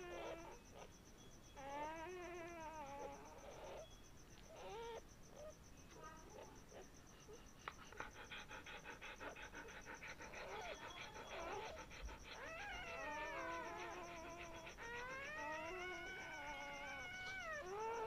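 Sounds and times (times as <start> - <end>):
puppies squealing: 9.0 - 18.0.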